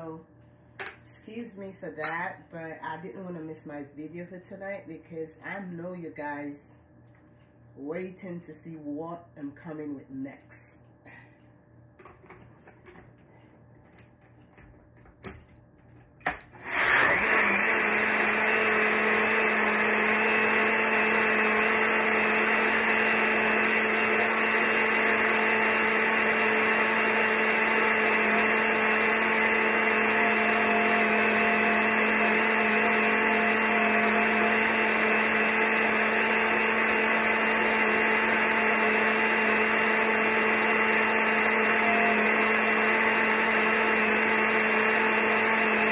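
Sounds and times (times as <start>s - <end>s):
blender motor whine: 16.2s - 45.9s.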